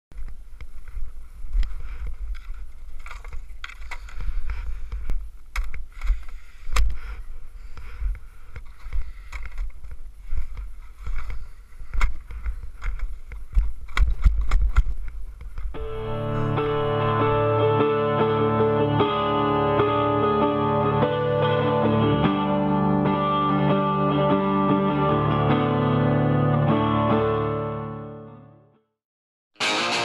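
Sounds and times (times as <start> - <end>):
clicks and knocks of skis and poles: 0.1 - 15.8.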